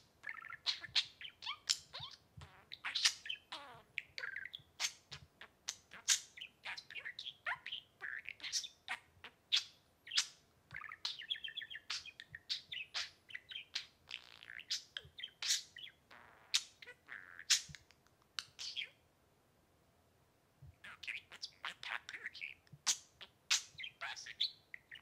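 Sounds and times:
budgerigar chattering: 0.2 - 17.8.

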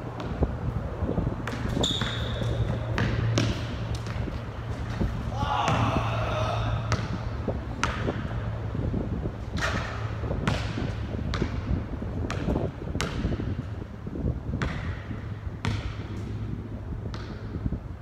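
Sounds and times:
basketball bouncing on hard court: 1.4 - 5.0, 6.9 - 8.4, 9.6 - 13.6, 14.5 - 16.3, 17.1 - 17.6.

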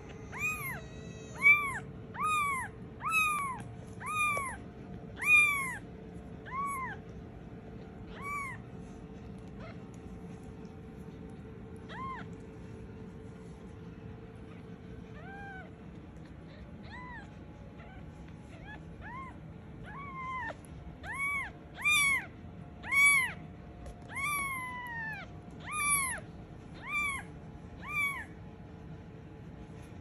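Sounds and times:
kitten mewing: 0.2 - 7.2, 7.9 - 12.6, 14.4 - 23.4, 24.1 - 28.4.

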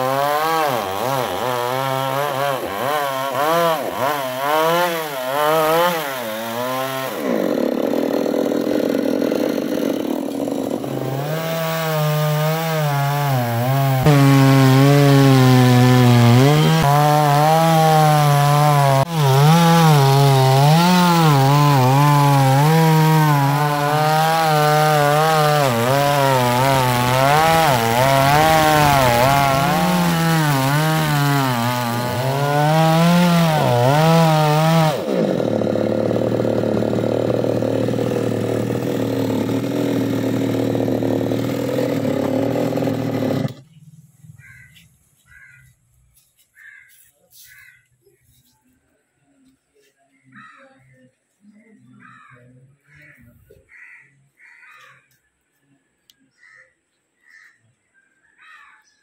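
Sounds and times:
chainsaw cutting wood: 0.0 - 43.7.

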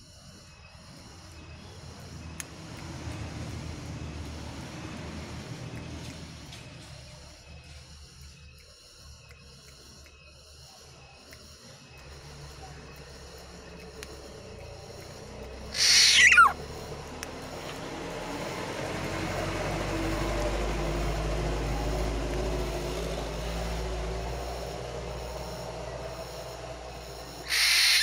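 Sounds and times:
bird harsh calls: 15.7 - 16.6, 27.4 - 28.0.

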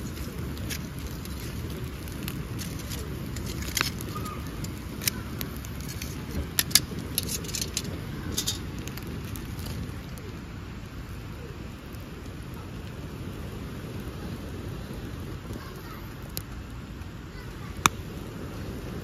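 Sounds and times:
fire crackling: 0.0 - 19.0
low background rumble: 0.0 - 19.0
tongs clicking on grill grate: 0.1 - 9.6.

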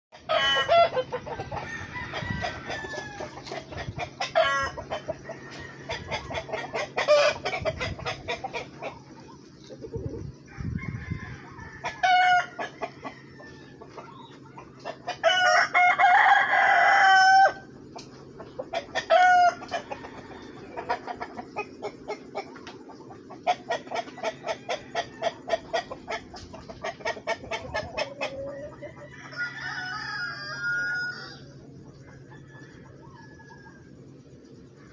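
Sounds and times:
chickens clucking: 0.1 - 34.9
rooster crowing: 0.2 - 3.5, 4.3 - 6.4, 10.4 - 13.8, 15.2 - 17.7, 19.0 - 20.8, 28.2 - 34.0.

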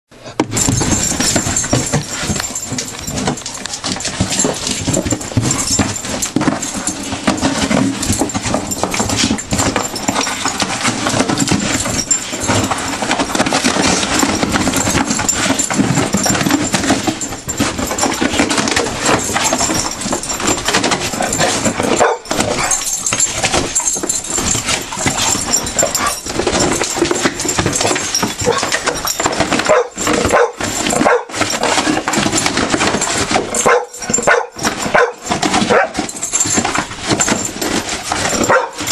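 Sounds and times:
dogs tearing cardboard: 0.4 - 38.9
dog barking: 21.9 - 22.8, 29.7 - 31.3, 33.6 - 36.0, 38.4 - 38.9.

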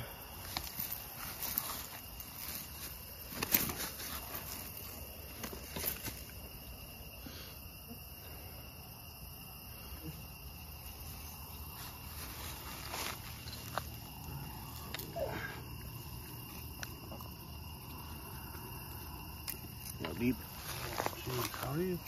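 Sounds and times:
crickets and night insects chirping: 0.0 - 22.0
rustling: 0.4 - 6.5, 10.8 - 17.3, 19.5 - 21.8.

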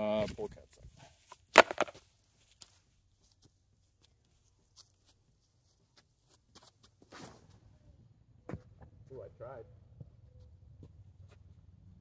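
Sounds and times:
plastic discs rustling: 1.2 - 2.0.

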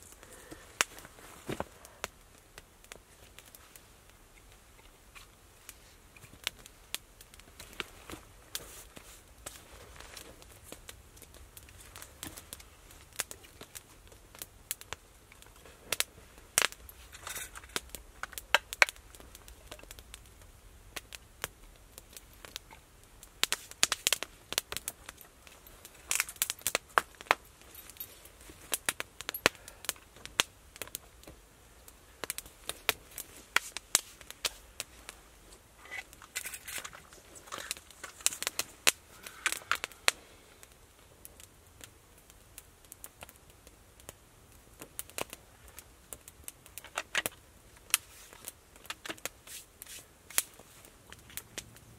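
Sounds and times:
campfire crackling: 0.0 - 51.9
kindling being handled: 35.5 - 38.7, 48.0 - 50.8.

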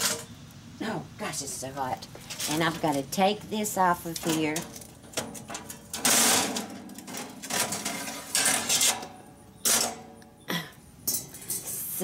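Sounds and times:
metal grill grate rattling: 2.2 - 10.2
scraping clatters: 4.0 - 10.2.

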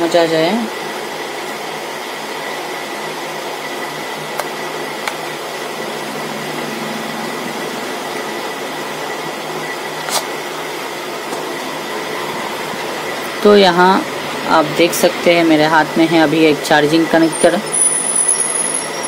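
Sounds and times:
faint high whine: 2.1 - 19.0.

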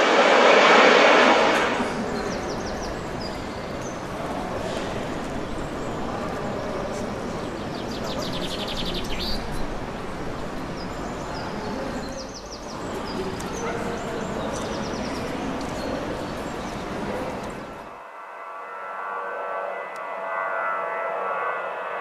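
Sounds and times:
steady rushing noise: 0.0 - 8.0
songbirds chirping: 2.1 - 17.9.

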